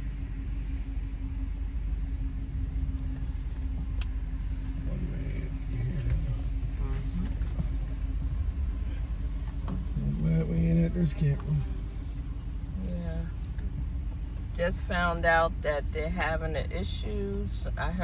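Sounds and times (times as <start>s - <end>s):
car driving slowly: 0.0s - 18.0s
constant hum: 0.0s - 18.0s.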